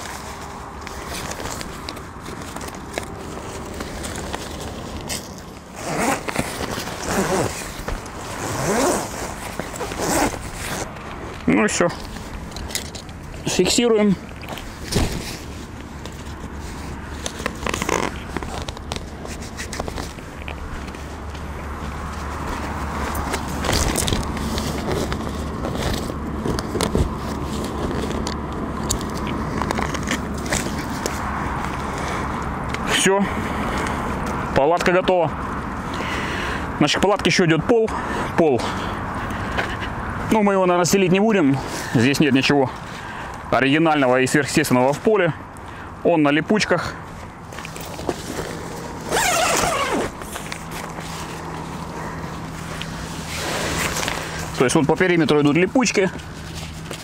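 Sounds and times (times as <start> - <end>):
tent zipper pulled: 0.0 - 11.0, 16.6 - 20.2, 22.4 - 28.2, 47.7 - 54.7
small clicks and scrapes: 14.3 - 21.4, 22.1 - 32.2
steady low hum: 46.8 - 57.0.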